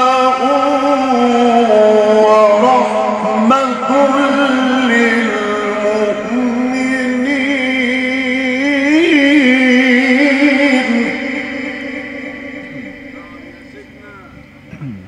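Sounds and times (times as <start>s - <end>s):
man chanting recitation: 0.0s - 15.0s.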